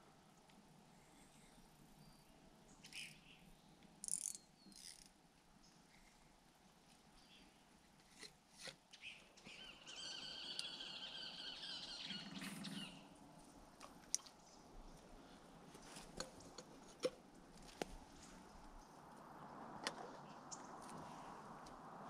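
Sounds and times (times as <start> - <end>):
light clicks of rod and reel: 3.8 - 5.2.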